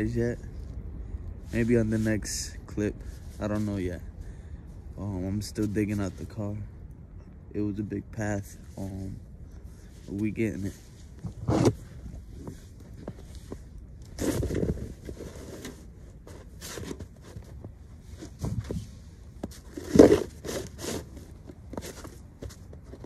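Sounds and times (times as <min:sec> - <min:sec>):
snow shovel scraping snow: 0:10.0 - 0:11.9, 0:14.1 - 0:17.4, 0:18.1 - 0:22.0.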